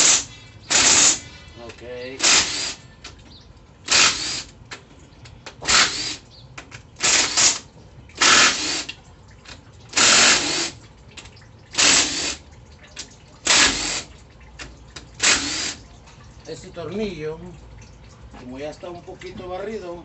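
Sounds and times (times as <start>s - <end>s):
power tool bursts: 0.0s - 1.2s, 2.2s - 2.8s, 3.9s - 4.5s, 5.6s - 6.2s, 7.0s - 7.6s, 8.2s - 8.9s, 9.9s - 10.8s, 11.7s - 12.4s, 13.4s - 14.1s, 15.2s - 15.8s.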